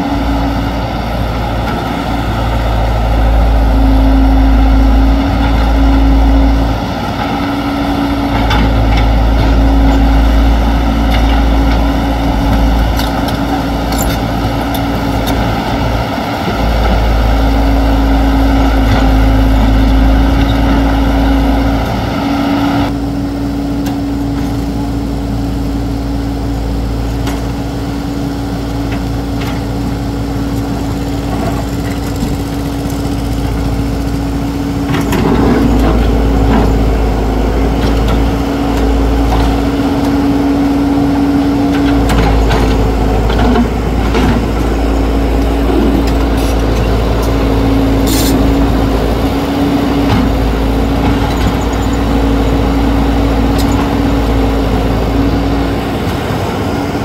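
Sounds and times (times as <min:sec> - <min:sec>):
excavator engine rumbling under load: 0:00.0 - 0:57.0.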